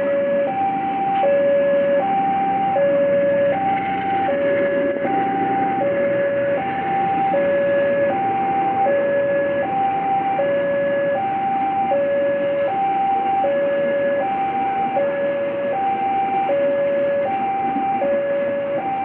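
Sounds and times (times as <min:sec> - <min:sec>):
train coaches rumbling past: 0:00.0 - 0:18.7
two-tone siren: 0:00.0 - 0:19.0.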